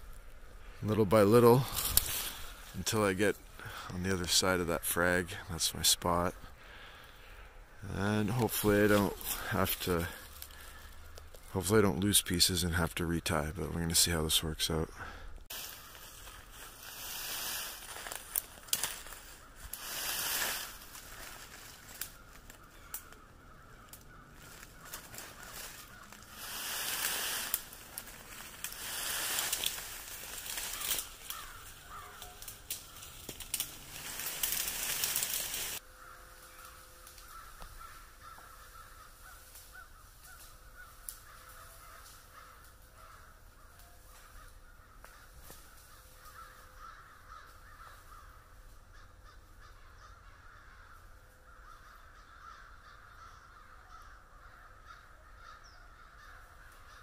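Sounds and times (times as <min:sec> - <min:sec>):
branches scraping and rustling: 0:00.0 - 0:07.1, 0:08.0 - 0:14.8, 0:15.4 - 0:57.0.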